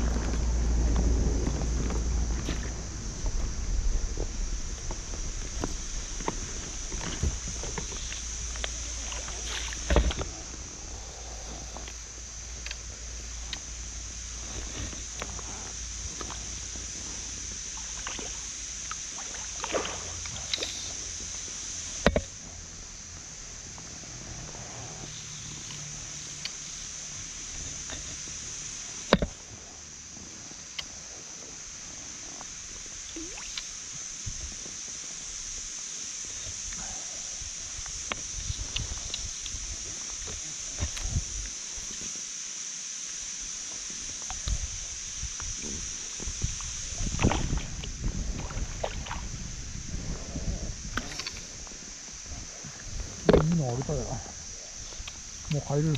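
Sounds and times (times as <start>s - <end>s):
water sloshing and splashing: 0.0s - 10.5s, 17.8s - 20.8s, 47.0s - 49.4s
faint ticks: 0.0s - 16.8s, 17.8s - 21.4s, 23.7s - 26.9s, 30.5s - 31.5s, 33.1s - 33.7s, 37.8s - 42.1s
water lapping and gurgling: 0.0s - 22.6s, 24.0s - 35.2s, 45.8s - 53.6s
steady high hiss: 0.0s - 55.9s.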